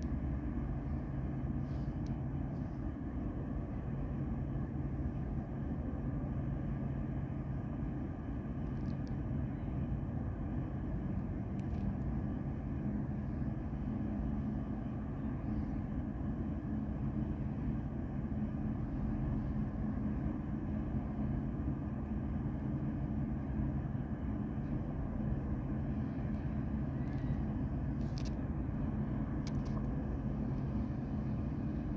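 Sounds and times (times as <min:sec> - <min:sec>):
distant diesel machinery drone: 0:00.0 - 0:31.9.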